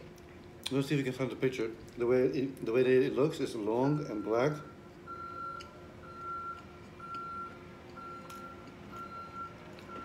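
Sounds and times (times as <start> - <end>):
reversing alarm beeping: 3.9 - 10.0.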